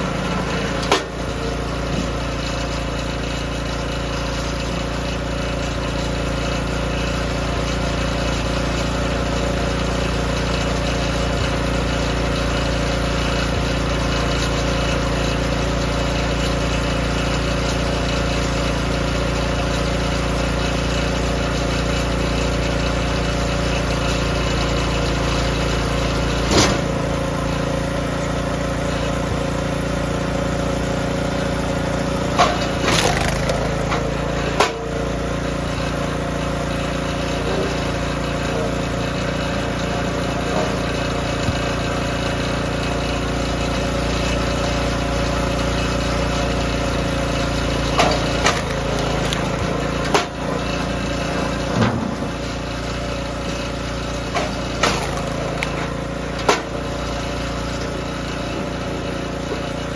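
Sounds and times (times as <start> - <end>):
small gas engine running: 0.0 - 59.9
wood cracking and knocking: 32.9 - 34.1, 48.0 - 50.3, 54.8 - 55.9.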